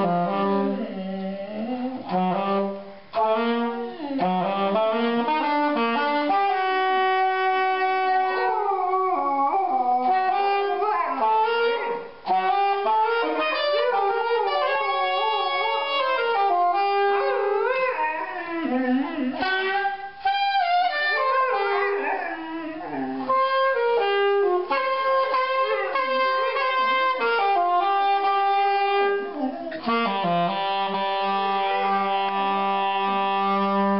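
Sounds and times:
music with long held notes: 0.0 - 33.9
dog howling: 7.5 - 20.0, 20.8 - 27.7, 29.1 - 30.1.

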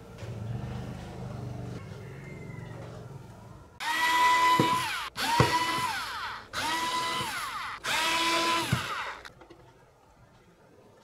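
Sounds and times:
cordless screwdriver whining: 3.8 - 9.3.

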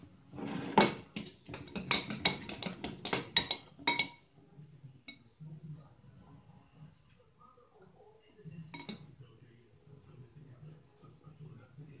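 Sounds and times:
spoon clinking against glass bowl: 1.0 - 4.2, 8.7 - 9.1.

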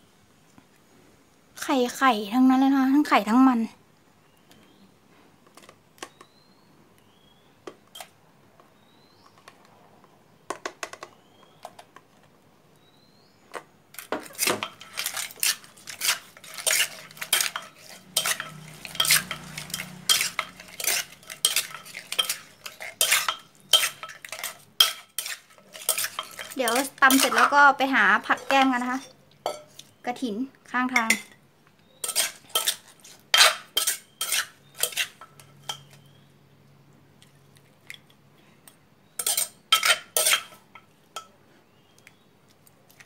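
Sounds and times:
metal spoon in clay mortar: 14.0 - 30.2, 30.8 - 36.2, 39.1 - 41.4.

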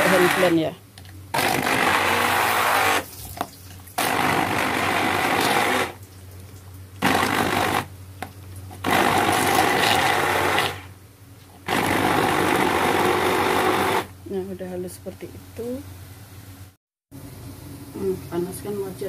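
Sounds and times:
hand blender whirring: 0.0 - 0.7, 1.4 - 3.1, 4.0 - 6.0, 7.0 - 7.9, 8.8 - 10.9, 11.6 - 14.1.

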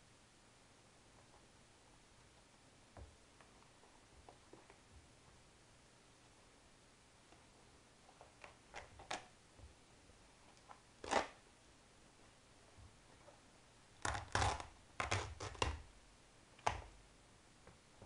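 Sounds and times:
shoe material snapping and ripping: 11.0 - 11.4, 14.0 - 15.8.

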